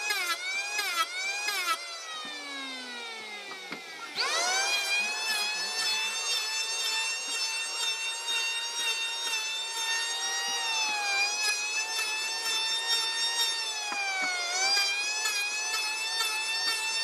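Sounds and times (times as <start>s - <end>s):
electric planer whining: 0.0s - 17.0s.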